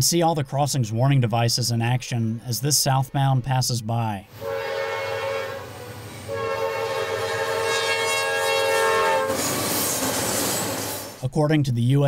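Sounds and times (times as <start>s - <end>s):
train air horn blasts: 4.3s - 9.7s
locomotives passing: 4.3s - 11.2s.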